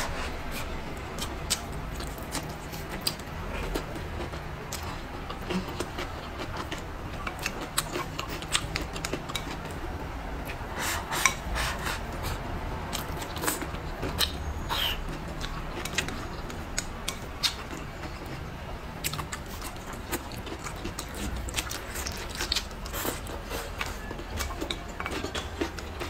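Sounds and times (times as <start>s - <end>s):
chewing crunches: 19.0s - 26.0s.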